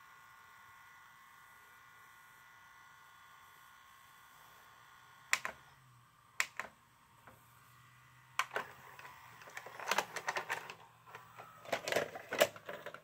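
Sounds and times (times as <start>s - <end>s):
mechanical clicks and clatter: 8.4s - 13.0s.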